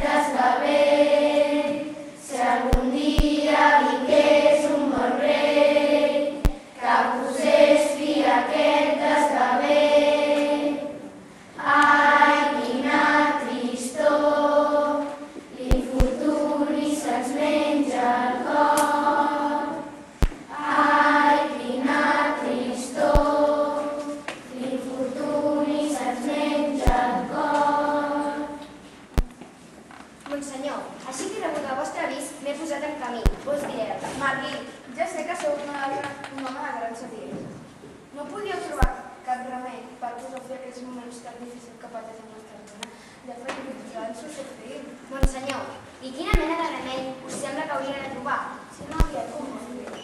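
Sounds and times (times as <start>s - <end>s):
children's choir singing: 0.0s - 28.8s.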